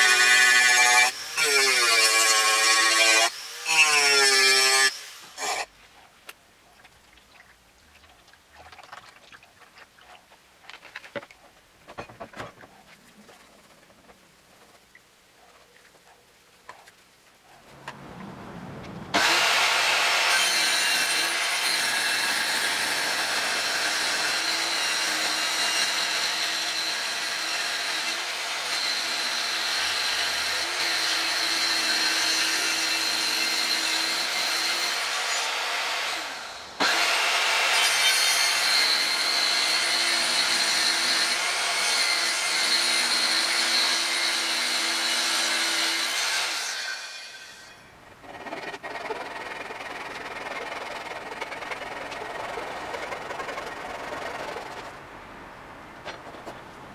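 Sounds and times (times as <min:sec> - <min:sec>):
circular saw cutting wood: 0:00.0 - 0:05.7, 0:19.1 - 0:55.0.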